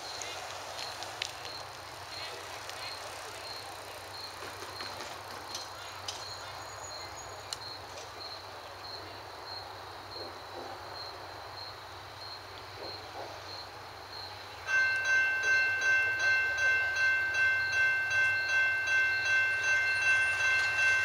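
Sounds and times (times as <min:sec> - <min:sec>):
cricket chirping: 0:00.0 - 0:21.0
faint outdoor background noise: 0:00.0 - 0:21.0.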